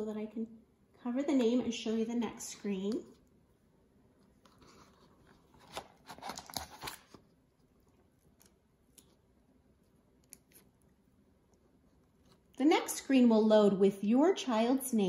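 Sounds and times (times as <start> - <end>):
faint rustling and scraping: 4.0 - 12.6.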